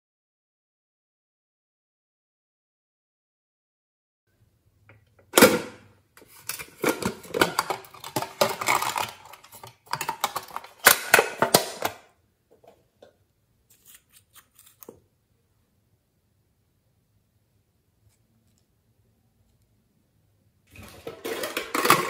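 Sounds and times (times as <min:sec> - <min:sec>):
metal tin clattering and rattling: 0:06.4 - 0:11.9, 0:20.7 - 0:22.0
metal tin clack: 0:21.0 - 0:22.0.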